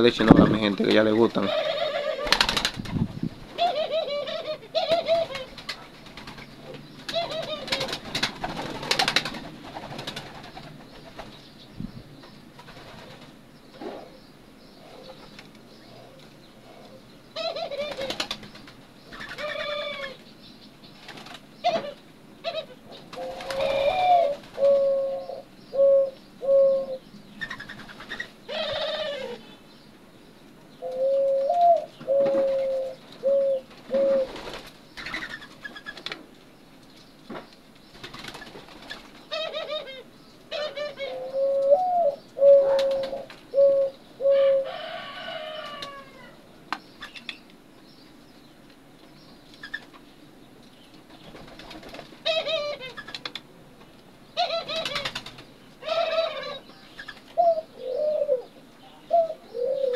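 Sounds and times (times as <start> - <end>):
doves cooing: 0.0 - 11.5, 12.5 - 20.3, 21.0 - 29.7, 30.7 - 36.2, 38.0 - 47.2, 51.2 - 53.5, 54.4 - 59.9
scratchy bird calls: 0.6 - 2.9, 3.6 - 11.5, 12.3 - 20.3, 20.9 - 29.6, 30.8 - 36.2, 50.8 - 53.5, 54.4 - 59.9.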